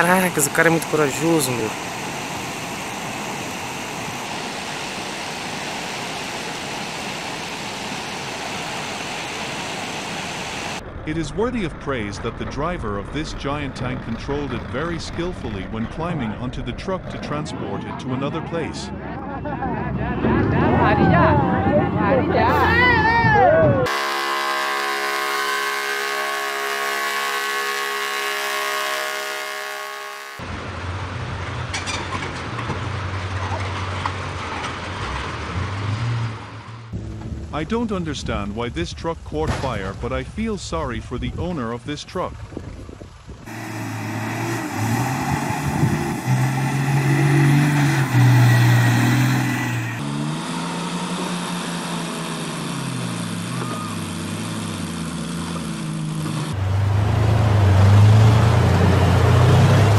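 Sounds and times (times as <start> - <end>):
rush of floodwater: 0.0 - 10.8
truck engine at full throttle: 0.0 - 37.9, 42.4 - 59.9.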